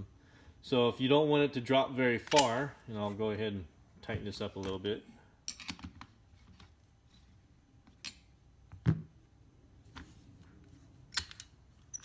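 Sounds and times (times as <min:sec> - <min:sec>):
clicks and knocks of handled tools: 0:11.1 - 0:12.0.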